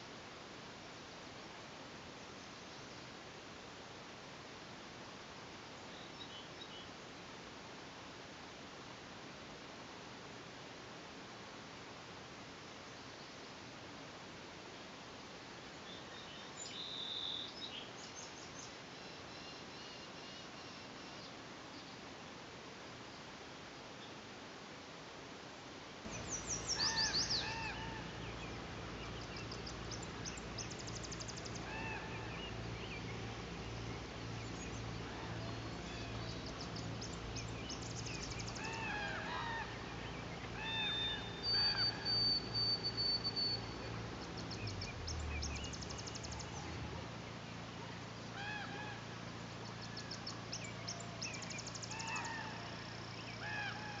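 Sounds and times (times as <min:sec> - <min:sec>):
songbird trills: 0:15.8 - 0:22.0, 0:26.1 - 0:54.0
ravens honking calls: 0:26.1 - 0:44.2
steady low hum: 0:26.1 - 0:54.0.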